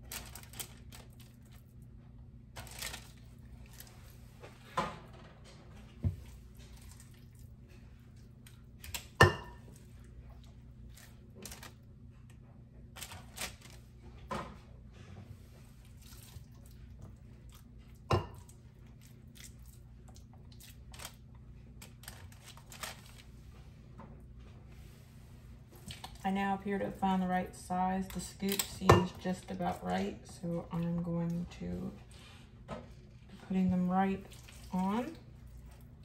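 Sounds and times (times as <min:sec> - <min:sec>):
hands squishing meat mixture: 0:15.8 - 0:21.3, 0:34.2 - 0:36.0.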